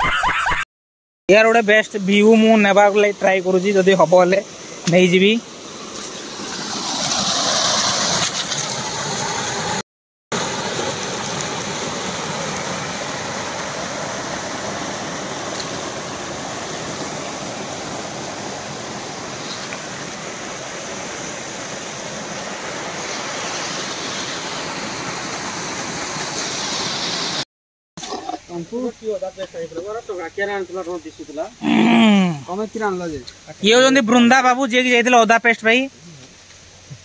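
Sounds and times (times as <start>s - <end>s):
water rushing over rocks: 1.7s - 27.4s.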